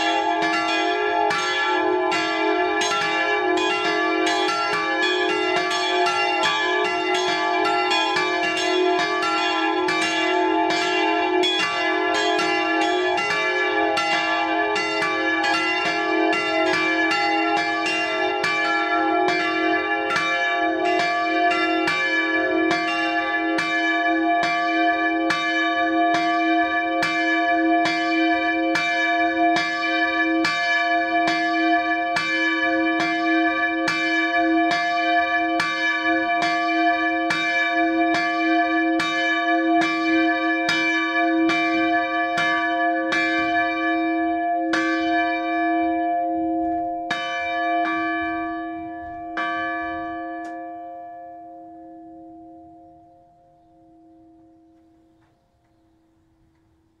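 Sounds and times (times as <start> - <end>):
church bells ringing: 0.0 - 55.3.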